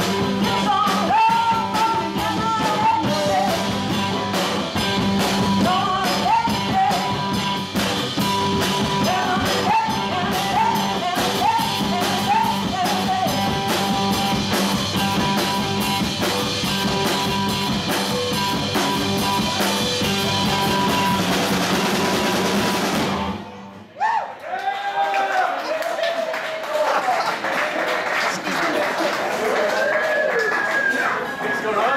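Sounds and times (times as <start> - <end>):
rock band playing: 0.0 - 23.9
woman singing: 0.4 - 4.1, 5.4 - 7.5, 8.9 - 13.8.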